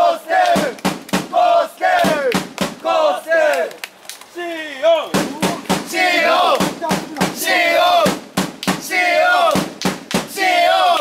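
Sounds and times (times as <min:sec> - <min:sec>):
football supporters chanting: 0:00.0 - 0:03.8, 0:04.4 - 0:11.0
drum beat: 0:00.5 - 0:02.8, 0:05.1 - 0:10.4.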